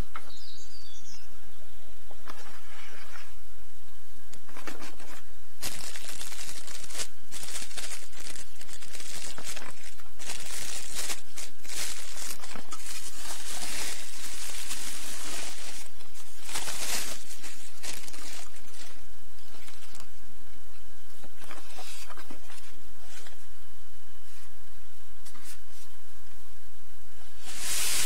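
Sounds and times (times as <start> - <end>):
steady low hum: 0.0 - 28.0
bubble wrap crinkling: 5.0 - 20.0, 27.4 - 28.0.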